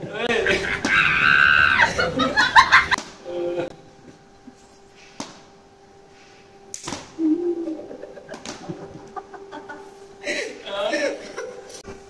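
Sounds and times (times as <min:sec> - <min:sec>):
rubber slipper slaps: 0:06.7 - 0:07.2.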